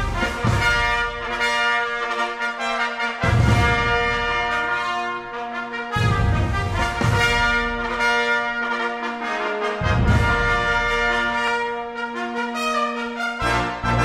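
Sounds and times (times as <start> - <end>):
brass held chords: 0.0 - 14.0
low bass notes: 9.8 - 11.2.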